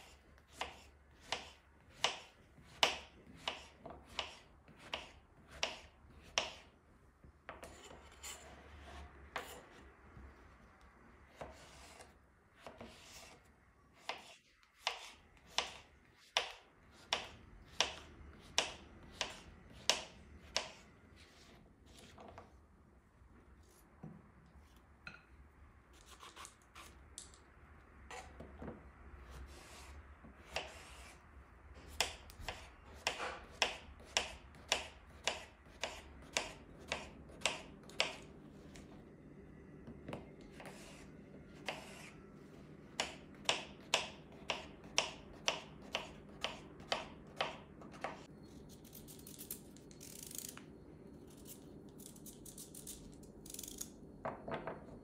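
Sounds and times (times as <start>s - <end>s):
knife chopping on wooden board: 0.5s - 6.7s, 14.0s - 20.8s, 31.8s - 38.3s, 41.6s - 42.1s, 42.9s - 48.3s
knife cutting carrot in hand: 14.0s - 22.3s.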